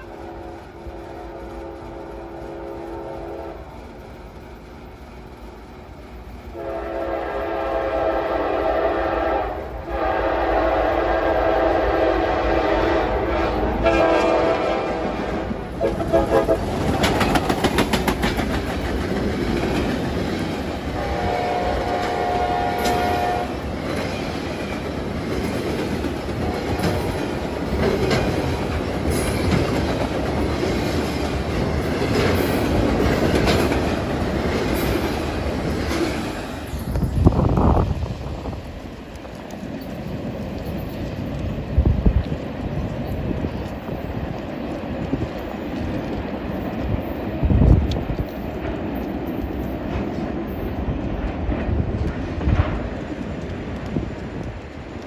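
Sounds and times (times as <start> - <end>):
locomotive horn blasts: 0.0 - 3.6, 6.6 - 15.2, 15.8 - 16.7, 21.0 - 23.6
train cars rumbling past: 0.0 - 55.0
wheels clicking over rail joints: 15.0 - 55.0.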